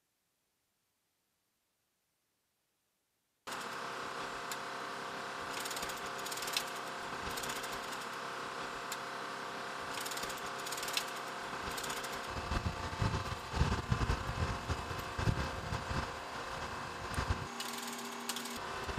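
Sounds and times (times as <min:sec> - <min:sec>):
helicopter turbine whine: 0:09.8 - 0:18.9
metallic clicks and rattles: 0:09.9 - 0:12.3.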